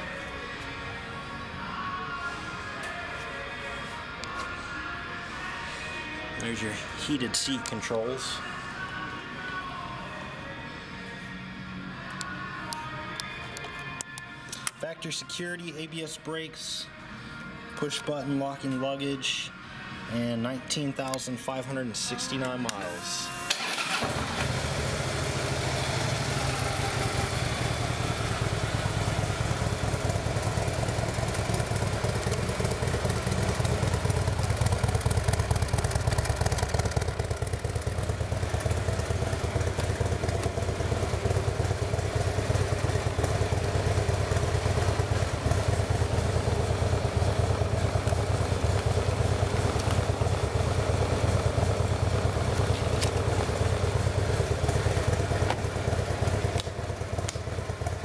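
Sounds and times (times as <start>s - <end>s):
motorcycle engine idling: 24.1s - 58.0s.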